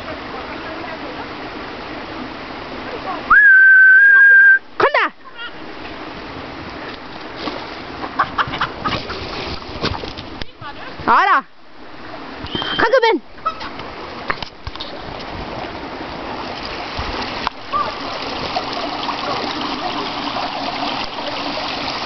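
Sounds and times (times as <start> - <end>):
person whistling: 3.3 - 4.6, 12.5 - 12.9.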